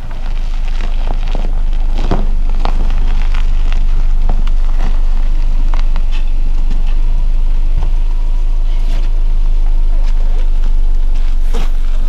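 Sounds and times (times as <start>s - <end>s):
car engine idling: 0.0s - 12.0s.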